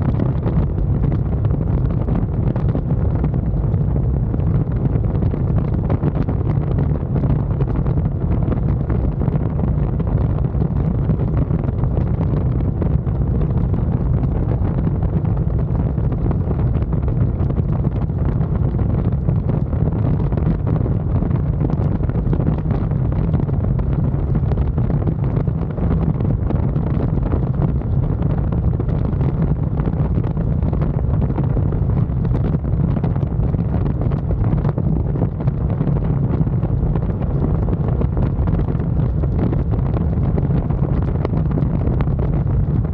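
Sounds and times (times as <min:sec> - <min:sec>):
wind buffeting microphone: 0:00.0 - 0:42.9.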